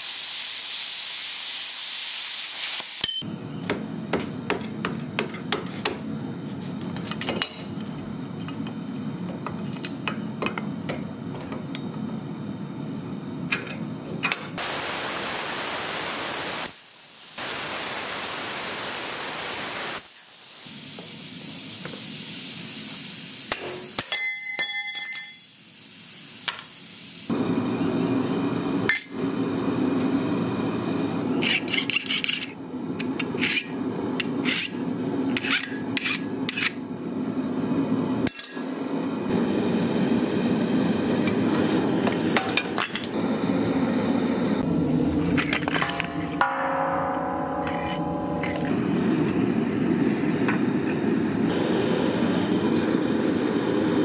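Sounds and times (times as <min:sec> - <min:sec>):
steel blade clinking: 0:03.0 - 0:03.3, 0:23.5 - 0:25.5, 0:45.8 - 0:48.8.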